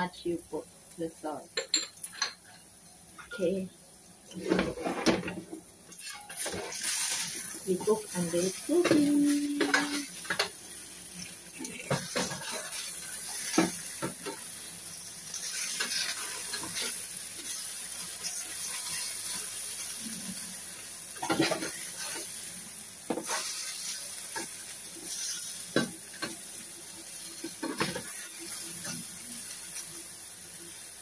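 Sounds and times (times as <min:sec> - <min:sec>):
potatoes sizzling in hot oil: 0:00.0 - 0:31.0
steel spatula scraping a pan: 0:04.3 - 0:10.5, 0:15.3 - 0:19.6, 0:21.2 - 0:22.4, 0:23.1 - 0:26.3.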